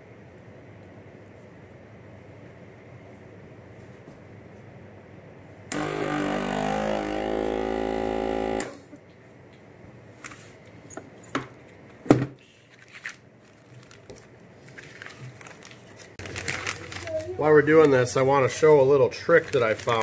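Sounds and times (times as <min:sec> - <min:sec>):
vacuum sealer pump humming: 0:05.7 - 0:09.0.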